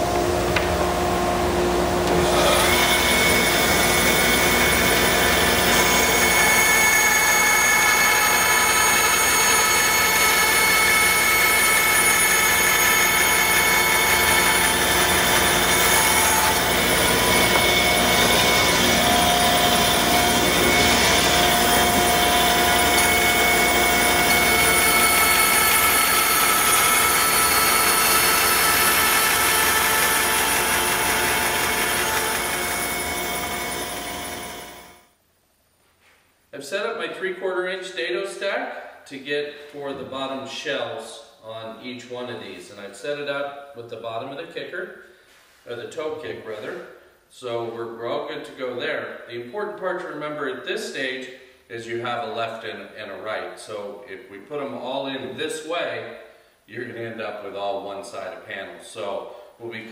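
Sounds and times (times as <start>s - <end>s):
bandsaw cutting plywood: 0.0s - 34.9s.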